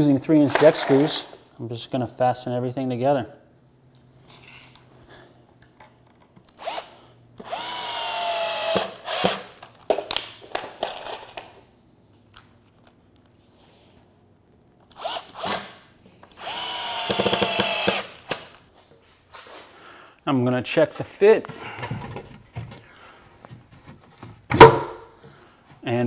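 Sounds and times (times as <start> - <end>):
power driver motor whining: 16.3 - 18.3.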